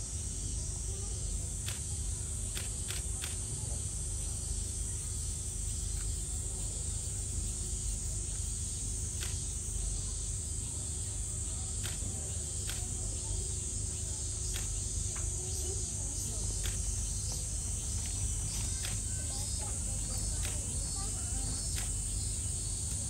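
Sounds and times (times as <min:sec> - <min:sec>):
insect chorus drone: 0:00.0 - 0:23.0
faint clicks: 0:01.6 - 0:01.9, 0:02.5 - 0:03.4, 0:09.2 - 0:09.4, 0:11.8 - 0:13.0, 0:14.5 - 0:15.3, 0:16.6 - 0:22.1.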